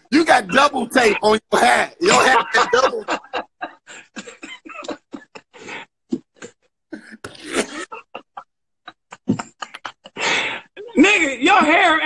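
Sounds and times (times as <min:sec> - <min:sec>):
voiced laugh: 0:00.3 - 0:06.6, 0:07.5 - 0:10.7
breathy laughter: 0:02.1 - 0:10.8.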